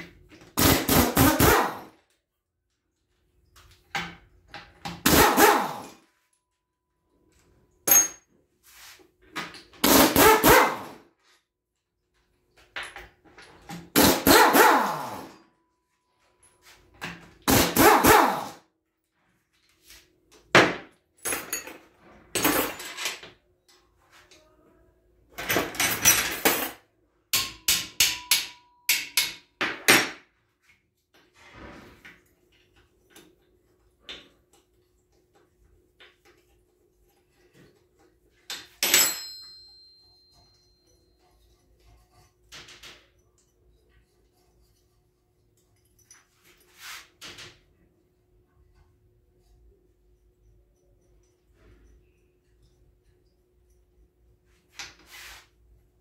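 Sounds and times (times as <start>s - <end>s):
air impact wrench hammering: 0.6s - 1.9s, 4.9s - 5.9s, 9.8s - 10.9s, 13.9s - 15.3s, 17.4s - 18.6s.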